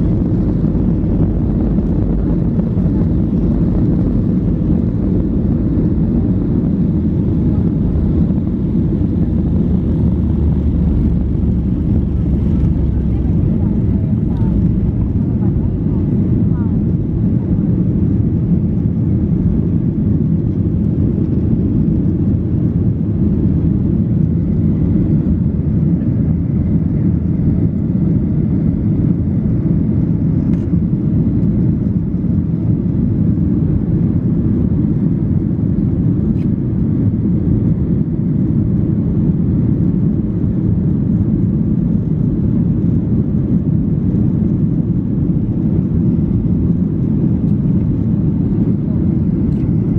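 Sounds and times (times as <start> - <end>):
jet engine rumble: 0.0 - 49.9
air rushing past fuselage: 7.9 - 17.2.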